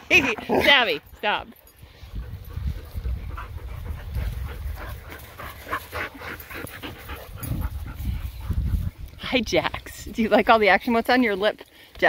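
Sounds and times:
dogs panting: 0.0s - 9.2s.

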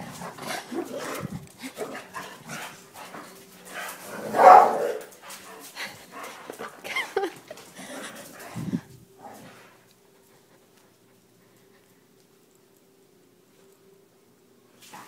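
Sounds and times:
dog barking: 4.2s - 5.0s.

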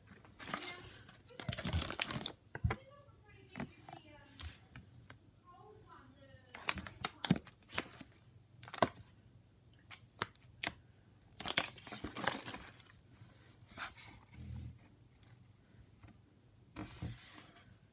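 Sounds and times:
paper crinkling: 0.0s - 2.4s, 6.6s - 9.0s, 11.4s - 13.0s.

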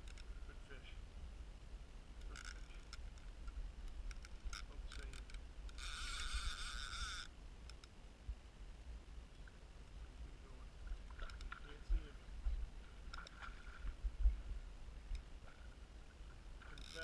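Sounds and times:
reel drag buzzing: 2.2s - 7.9s, 15.0s - 17.0s
fishing reel ticking: 4.0s - 7.9s, 16.8s - 17.0s.

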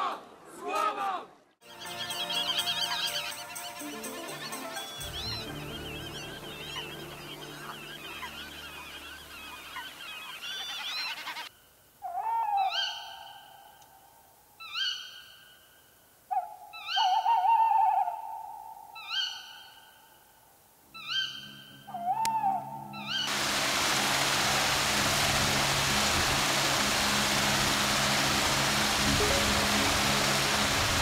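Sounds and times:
chorus of high bird calls: 1.6s - 13.7s, 16.3s - 18.1s, 21.0s - 23.4s
loud bird calls at one pitch: 4.4s - 13.8s, 16.3s - 18.4s.

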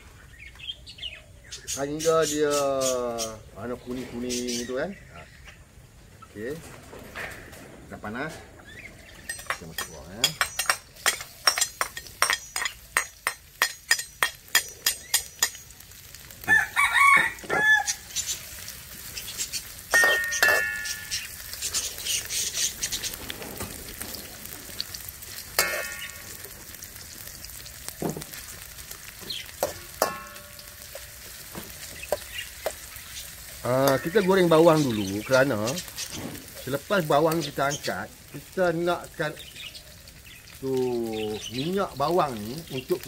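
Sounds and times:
shallots sizzling in oil: 9.0s - 43.0s
rooster crowing: 16.4s - 18.1s
metal spoon knocking on wok: 19.9s - 21.2s, 29.6s - 31.0s.

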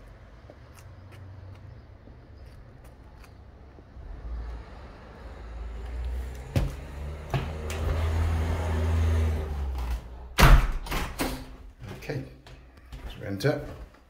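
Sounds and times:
front door knocks: 10.4s - 11.5s.

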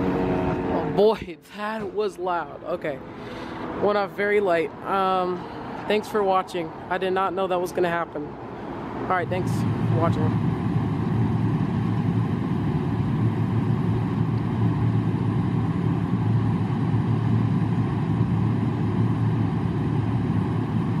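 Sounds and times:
vehicle engine rumbling: 0.0s - 21.0s.

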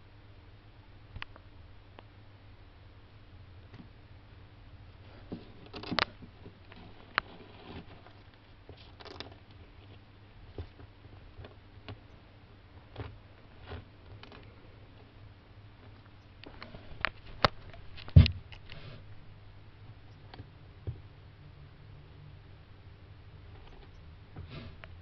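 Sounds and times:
low steady hum: 0.0s - 25.0s
tortoise claws scratching soil: 5.2s - 10.0s.

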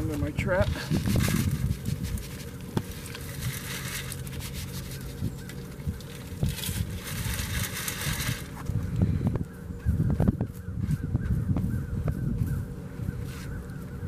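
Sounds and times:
dirt sifting through wire screen: 0.0s - 9.2s, 13.2s - 14.0s.

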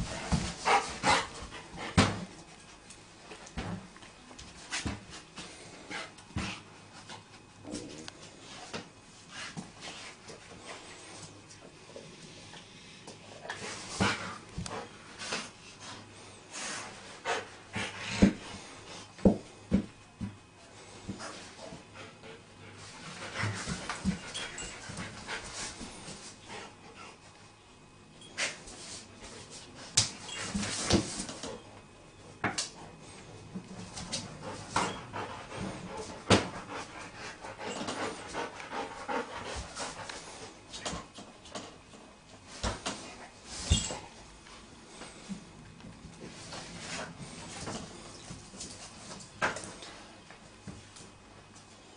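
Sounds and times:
dog sniffing and panting: 0.0s - 2.7s, 20.8s - 27.4s, 33.0s - 41.2s
dog panting: 34.2s - 40.6s.

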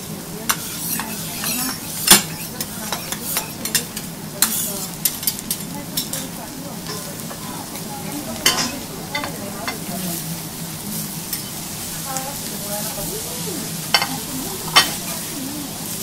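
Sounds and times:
steak sizzling on a griddle: 0.0s - 16.0s
spatula and knife clicking on metal: 0.5s - 6.2s.

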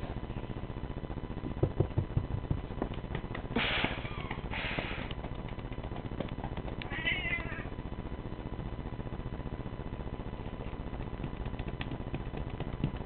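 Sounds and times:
cat yowling and meowing: 6.8s - 7.7s.

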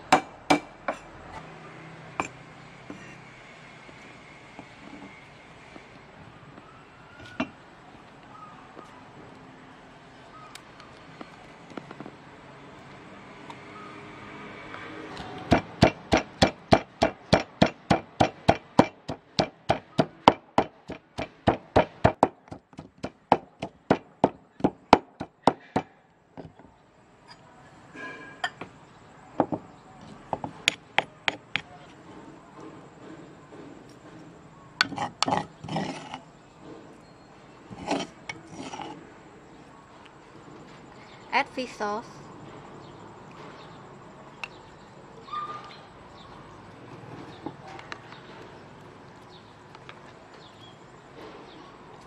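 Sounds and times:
pestle pounding in wooden mortar: 15.4s - 25.9s.

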